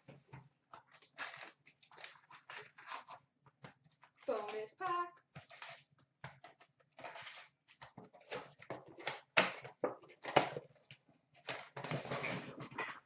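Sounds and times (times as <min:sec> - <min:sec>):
trading cards rustling: 0:00.8 - 0:03.2, 0:04.0 - 0:05.8.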